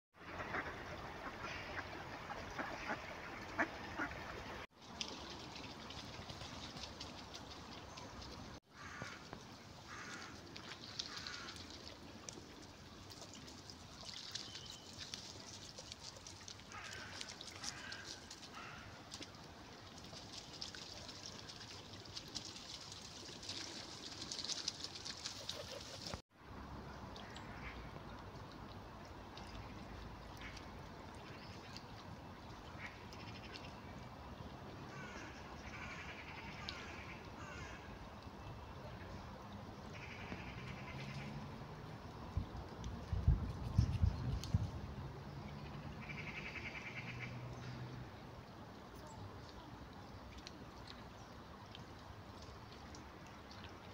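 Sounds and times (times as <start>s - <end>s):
stream water: 0.2s - 53.9s
ducks quacking: 0.3s - 4.4s.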